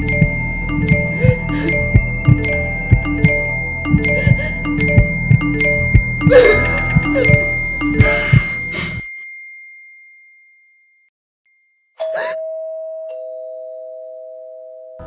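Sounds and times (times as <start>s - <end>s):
ding-dong doorbell chime: 7.2s - 15.0s.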